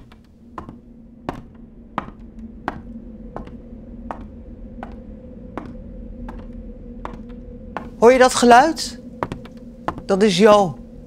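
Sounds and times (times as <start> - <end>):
steady low hum: 0.0 - 11.0
footsteps pacing: 9.2 - 10.2.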